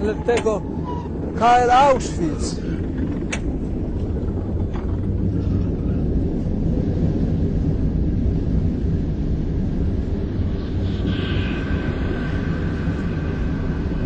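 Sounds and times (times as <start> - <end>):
railway wagon rumbling on track: 0.0 - 10.5.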